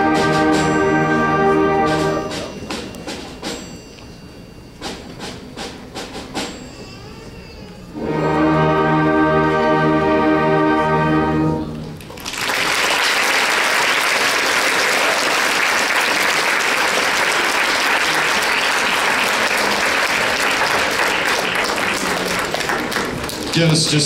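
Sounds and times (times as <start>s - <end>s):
audience applause: 12.0s - 24.0s.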